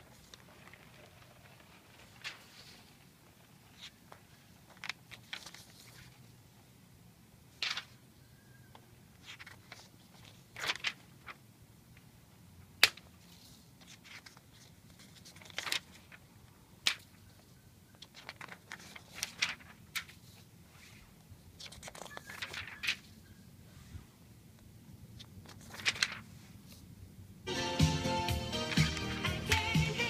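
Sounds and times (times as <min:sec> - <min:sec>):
paper sheets rustling: 0:00.0 - 0:06.3, 0:07.5 - 0:08.0, 0:09.2 - 0:11.4, 0:12.8 - 0:23.2, 0:25.2 - 0:26.9
paper snap: 0:07.6 - 0:07.9, 0:12.8 - 0:13.2, 0:16.8 - 0:17.2.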